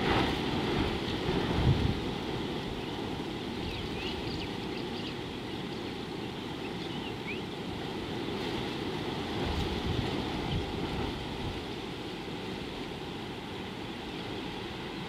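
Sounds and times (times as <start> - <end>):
wind rumbling on microphone: 0.0 - 15.0
faint bird chirps: 6.6 - 7.6.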